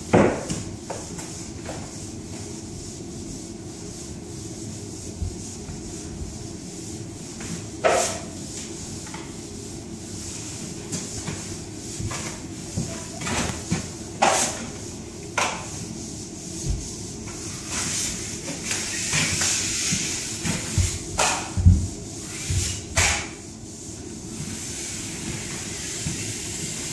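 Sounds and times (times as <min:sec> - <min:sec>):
steady low hum: 0:00.0 - 0:26.9.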